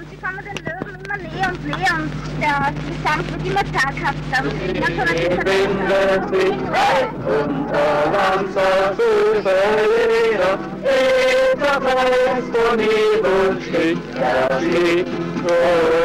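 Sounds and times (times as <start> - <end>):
acoustic guitars playing: 0.0 - 16.0
men singing: 4.4 - 16.0.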